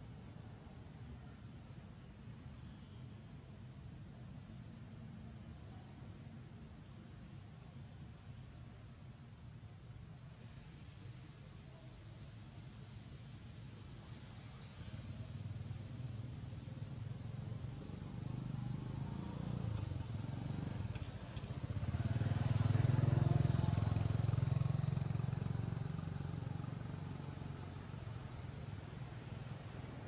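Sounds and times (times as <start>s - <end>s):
vehicle engine droning: 16.4s - 30.0s.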